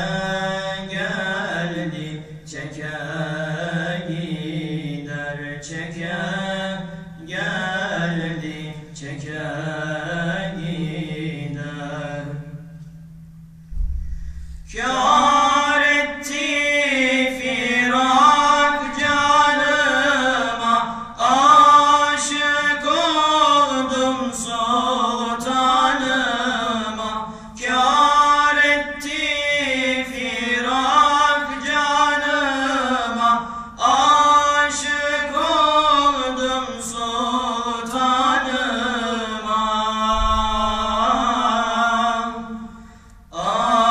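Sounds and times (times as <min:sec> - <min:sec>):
men singing a hymn unaccompanied: 0:00.0 - 0:12.6, 0:14.7 - 0:43.9
singer breathing: 0:14.0 - 0:14.7, 0:27.2 - 0:27.6, 0:33.4 - 0:33.8, 0:42.7 - 0:43.3.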